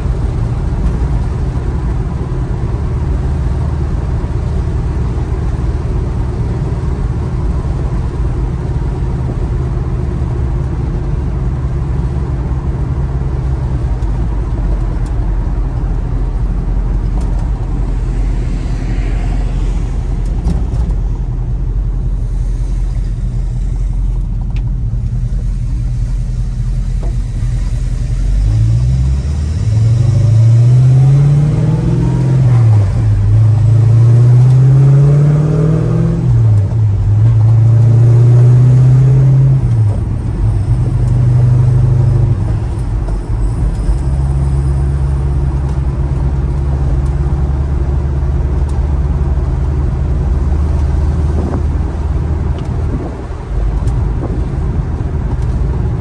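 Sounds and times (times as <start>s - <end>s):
car engine revving: 16.1s - 24.2s, 27.9s - 42.6s.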